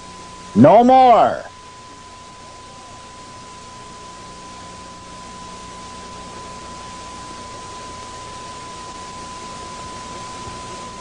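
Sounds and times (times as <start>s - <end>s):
tape hiss: 0.0s - 11.0s
faint low hum: 0.6s - 1.5s.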